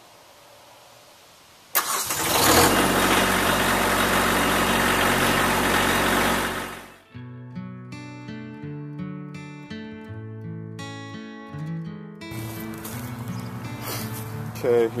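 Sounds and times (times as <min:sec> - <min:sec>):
diesel engine cranking and idling: 0:01.8 - 0:07.0
acoustic guitar music: 0:02.8 - 0:15.0.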